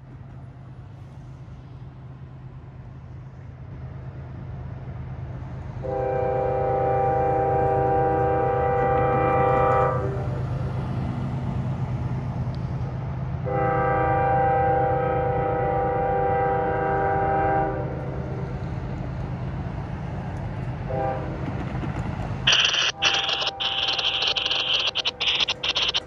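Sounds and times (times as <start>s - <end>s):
train air horn blast: 5.8s - 10.3s, 13.4s - 17.9s, 20.9s - 21.4s
locomotive engine rumble: 20.5s - 26.0s.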